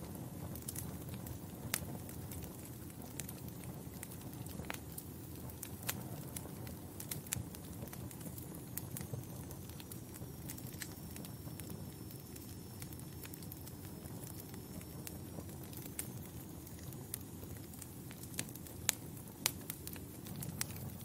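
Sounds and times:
burning logs popping and snapping: 0.0 - 21.0
wood fire crackling: 0.0 - 21.0.

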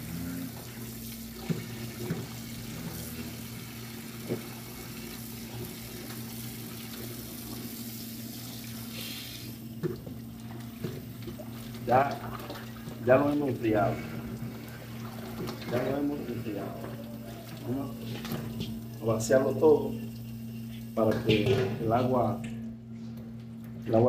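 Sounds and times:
hands kneading and rinsing meat: 0.0 - 22.2
tap water running into steel bowl: 0.5 - 22.6
water splashes: 9.9 - 19.5.

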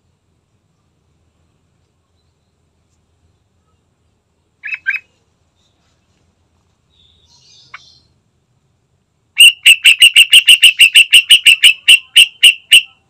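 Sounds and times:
bird calling sharp notes: 4.6 - 5.2, 9.4 - 13.0.

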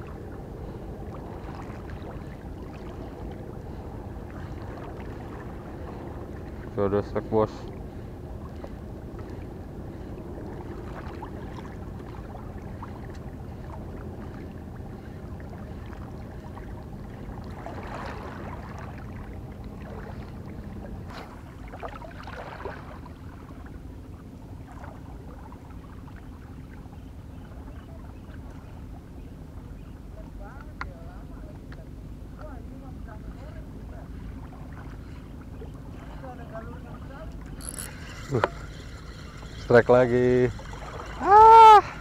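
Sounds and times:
boat engine humming: 0.0 - 42.0
water washing: 37.7 - 42.0.

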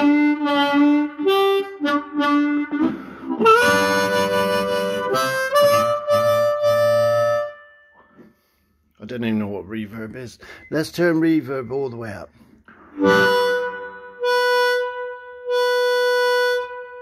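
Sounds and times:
amplified harmonica: 0.0 - 8.7, 12.7 - 17.0.

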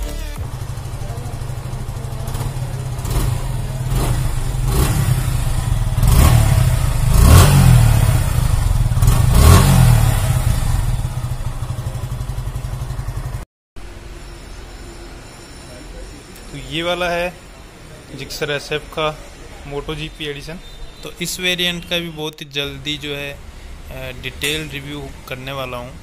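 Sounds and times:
motorcycle engine idling: 0.2 - 13.4.

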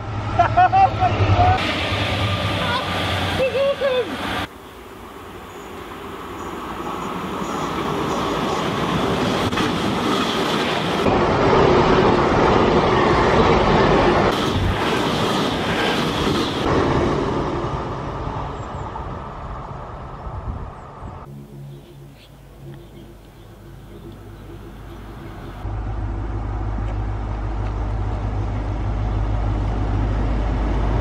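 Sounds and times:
train passing at speed: 0.0 - 31.0.

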